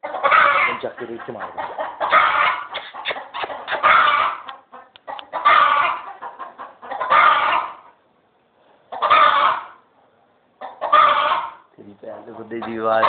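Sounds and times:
animal calling loudly: 0.0s - 0.8s, 1.4s - 6.2s, 6.9s - 7.9s, 9.0s - 9.8s.

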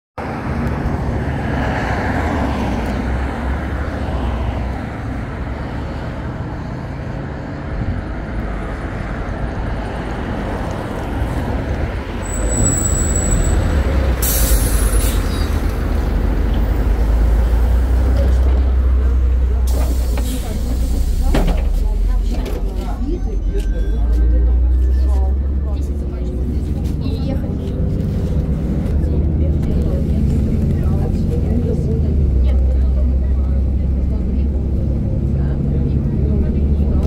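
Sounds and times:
bus engine rumble: 0.2s - 37.0s
road traffic passing: 0.2s - 37.0s
brief high squeal: 12.2s - 15.6s
air brakes hissing: 12.3s - 15.6s, 19.7s - 21.3s.

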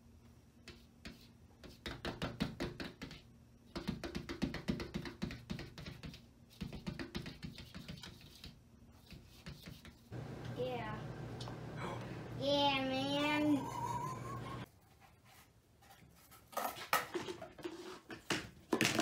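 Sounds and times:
cat chattering: 13.6s - 14.6s.

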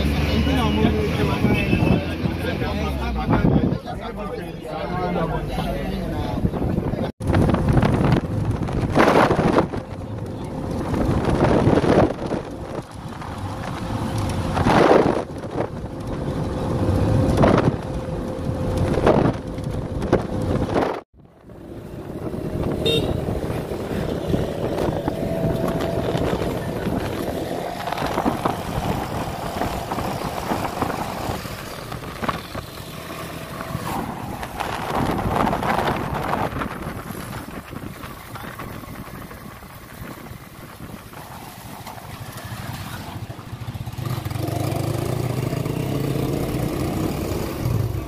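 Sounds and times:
road and wind noise inside car: 0.0s - 48.0s
street traffic noise: 0.0s - 48.0s.

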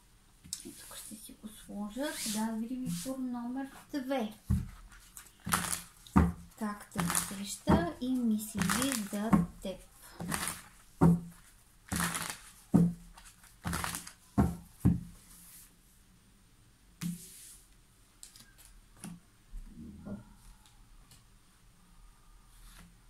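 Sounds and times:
cards shuffling: 4.5s - 7.9s, 8.5s - 9.5s, 10.1s - 14.7s
cards knocking on table: 5.5s - 8.0s, 10.2s - 13.0s, 13.6s - 15.1s.

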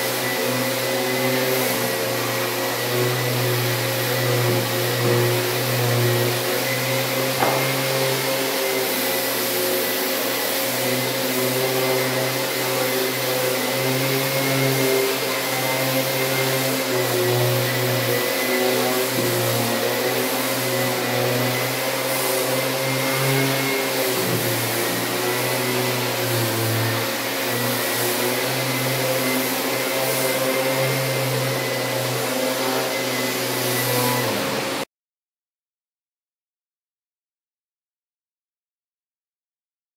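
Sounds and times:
dust extractor suction: 0.0s - 34.8s
orbital sander running: 0.0s - 34.8s.

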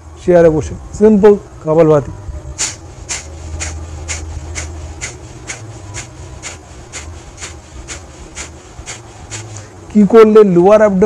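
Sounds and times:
sharp nasal exhalations: 2.6s - 9.8s.

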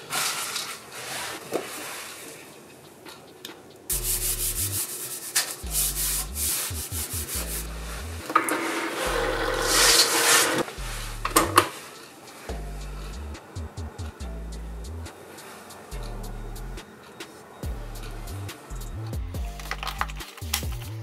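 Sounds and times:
hands rubbing cardstock: 3.9s - 12.5s.

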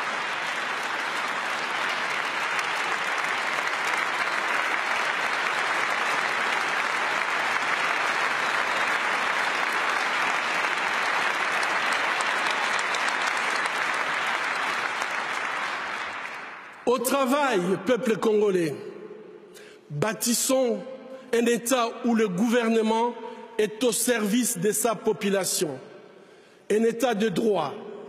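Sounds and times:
audience applauding: 0.0s - 17.2s.

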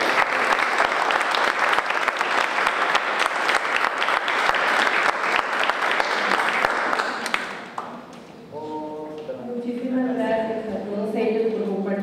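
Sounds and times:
audience clapping: 0.0s - 8.2s.

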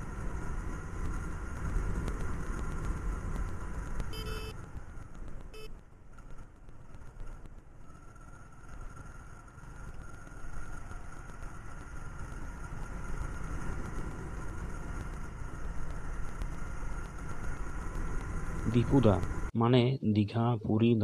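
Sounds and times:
motorcycle engine running: 0.0s - 19.5s.

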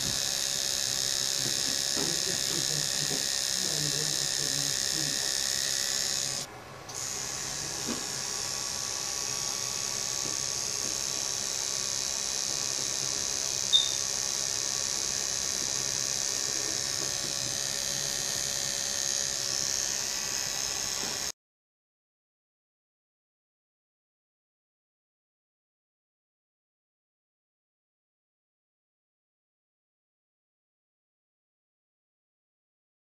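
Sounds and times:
tattoo machine buzzing: 0.0s - 21.4s.

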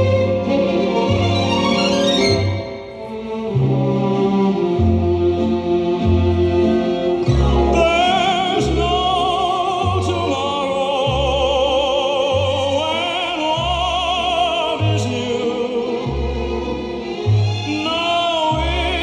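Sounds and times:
classical singer with vibrato: 2.6s - 19.0s
bass line: 3.6s - 17.9s.

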